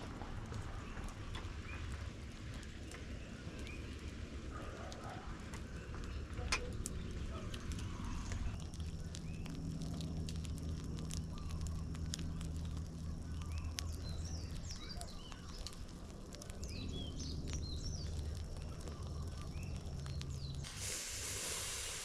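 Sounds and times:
low steady hum: 0.0 - 21.4
steady rushing hiss: 0.0 - 22.0
faint clicks: 2.4 - 20.7.

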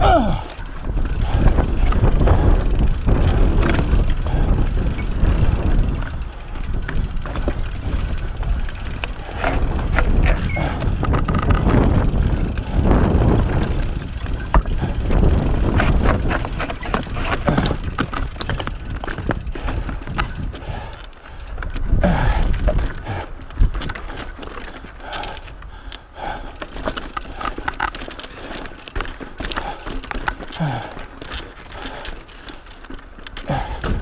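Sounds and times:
wind on microphone: 0.0 - 24.2
bike rattling and clattering: 0.0 - 34.0.

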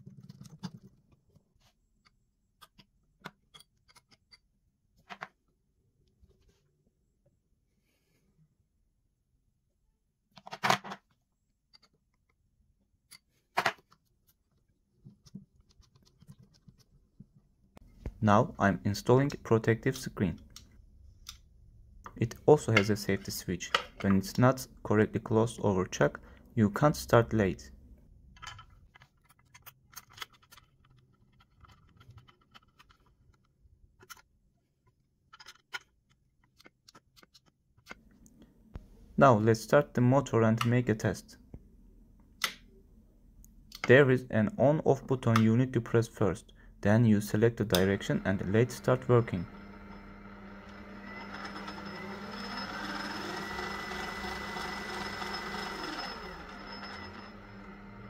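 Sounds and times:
small metal clicks and scraping: 0.0 - 1.2, 2.0 - 4.5, 28.4 - 38.0.

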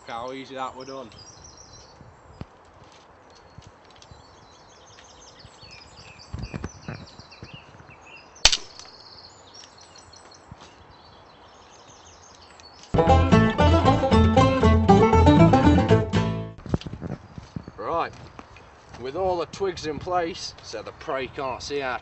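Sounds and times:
birds chirping: 0.0 - 13.0
sharp click: 8.4 - 9.0
loud music: 13.0 - 16.6.

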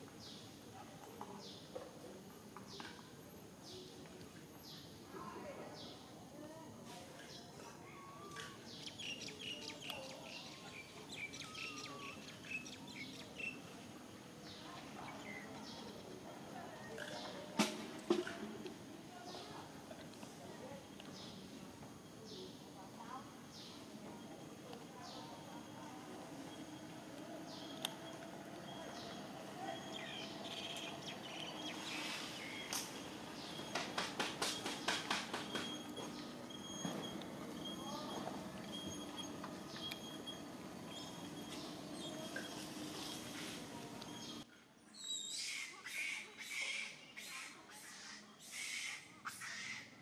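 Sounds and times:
small birds chirping: 7.2 - 13.8, 14.4 - 17.4, 22.2 - 50.0.

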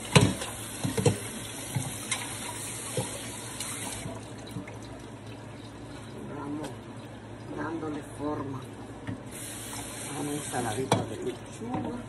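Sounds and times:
tap running into sink: 0.0 - 4.7.

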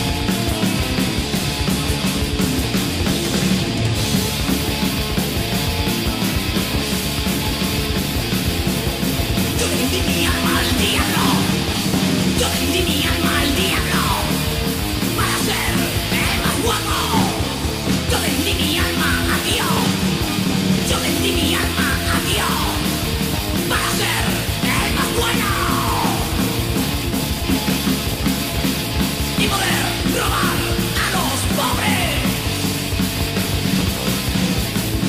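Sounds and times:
distorted electric guitars: 0.0 - 35.0
drums: 0.0 - 35.0
shouted vocals: 9.6 - 11.8, 12.4 - 14.4, 15.1 - 20.1, 20.8 - 23.0, 23.6 - 26.5, 29.4 - 32.5.

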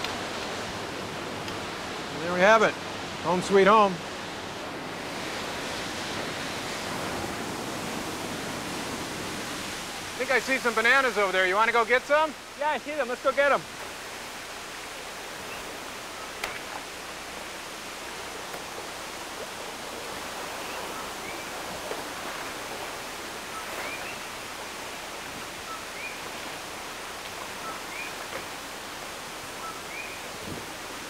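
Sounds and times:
rainforest rushing hiss: 0.0 - 31.0
frogs calling: 20.0 - 28.6, 29.3 - 30.4.

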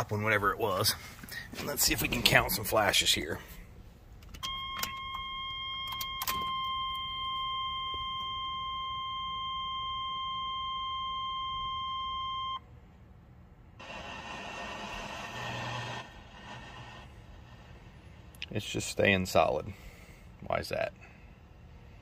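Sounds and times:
seatbelt warning buzzer: 4.4 - 12.6.

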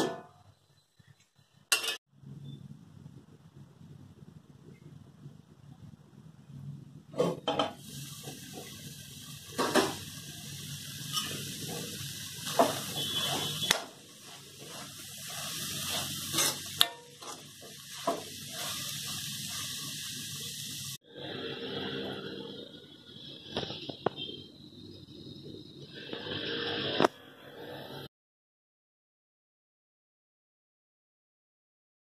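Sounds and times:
metal pan and lid clanking: 1.7 - 2.0, 7.1 - 8.8, 9.5 - 10.0, 11.0 - 14.0, 15.8 - 18.8
food sizzling: 6.2 - 28.0
spatula scraping pan: 7.1 - 20.4.

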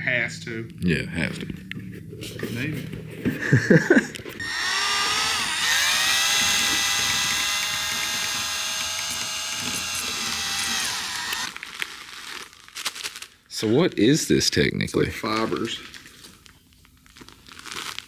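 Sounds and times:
power tool motor whining: 4.4 - 11.6.

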